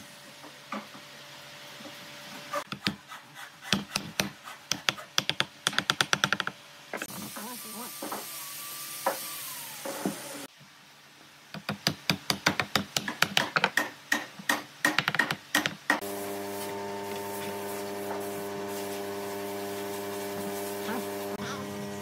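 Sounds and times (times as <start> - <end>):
wooden blocks clicking and knocking: 3.8 - 6.6, 11.6 - 16.0.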